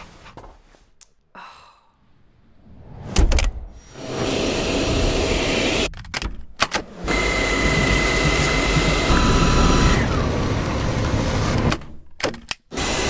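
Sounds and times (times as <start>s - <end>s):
cordless vacuum running: 4.0s - 5.9s, 7.0s - 11.7s, 12.7s - 13.0s.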